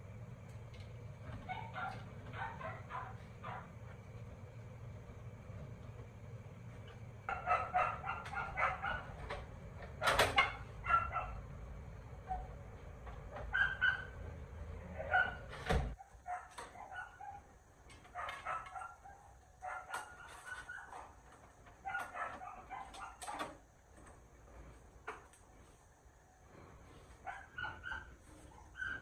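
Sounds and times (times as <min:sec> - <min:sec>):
animal yips and whines: 0:27.3 - 0:29.0.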